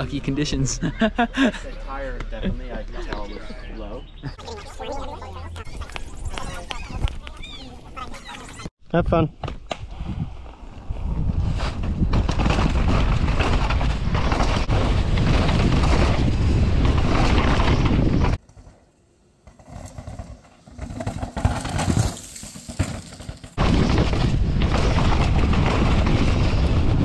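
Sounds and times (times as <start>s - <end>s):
bike tyres rattling over rocks: 11.2s - 18.7s, 19.4s - 27.0s.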